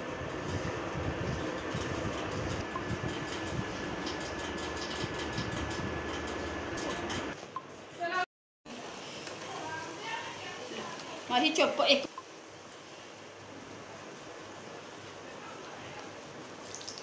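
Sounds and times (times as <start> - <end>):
rumbling background noise: 0.0 - 7.4.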